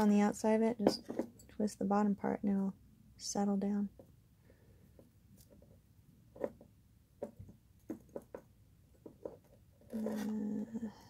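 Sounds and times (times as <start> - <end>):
person humming: 10.0 - 11.0.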